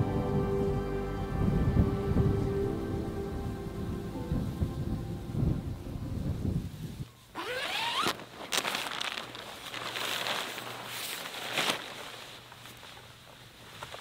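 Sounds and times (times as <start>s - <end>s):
tent fabric rustling: 6.4s - 14.0s
tent zipper pulled open: 7.3s - 11.8s
soft footsteps on ground: 8.0s - 14.0s.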